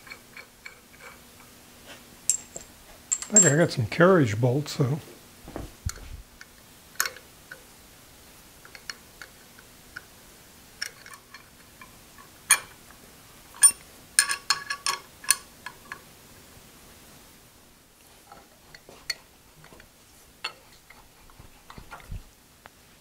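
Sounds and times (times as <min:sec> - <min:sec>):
wrench and rods clinking on gear: 0:02.3 - 0:03.8.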